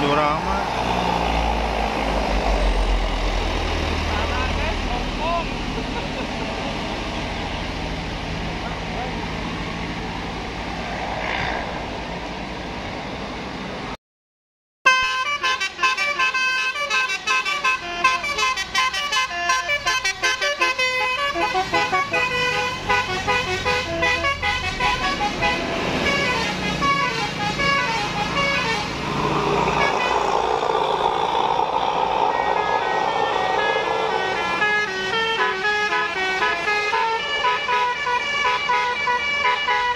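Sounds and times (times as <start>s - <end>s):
heavy vehicle engine: 0.0s - 14.0s, 15.2s - 39.9s
road traffic: 0.0s - 14.0s, 14.9s - 39.9s
bus horn playing melody: 14.9s - 29.0s, 32.7s - 39.9s.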